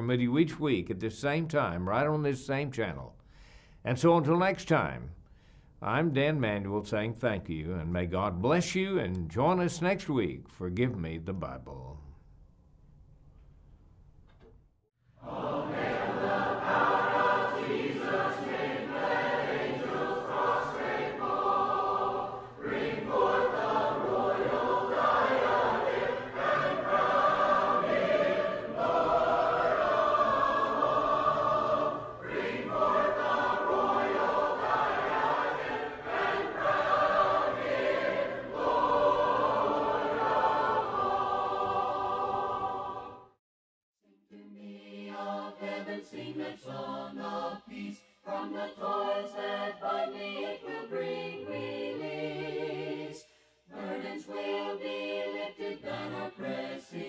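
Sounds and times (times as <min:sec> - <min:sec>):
choir singing a hymn: 0:15.2 - 0:43.4, 0:44.1 - 0:57.0.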